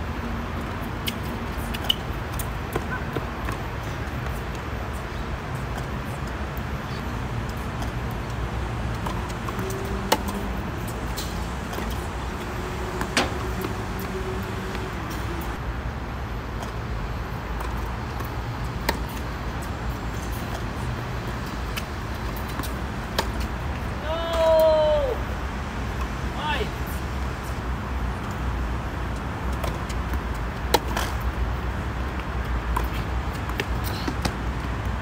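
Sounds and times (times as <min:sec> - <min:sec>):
tennis ball hit by racket: 0:09.0 - 0:10.4.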